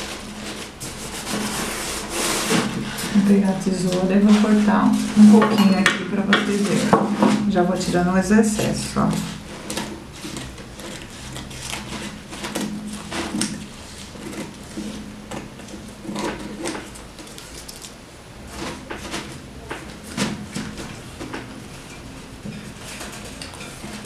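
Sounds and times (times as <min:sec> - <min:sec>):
stiff paper crinkling: 0:06.1 - 0:21.3
scissors snipping paper: 0:08.6 - 0:20.1.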